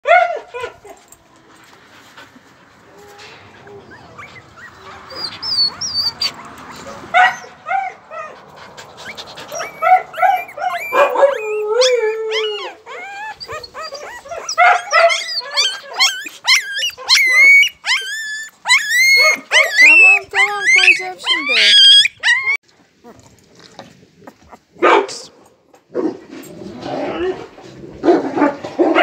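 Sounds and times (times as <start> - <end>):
puppy whimpering and squealing: 3.0 - 7.6, 8.8 - 23.2.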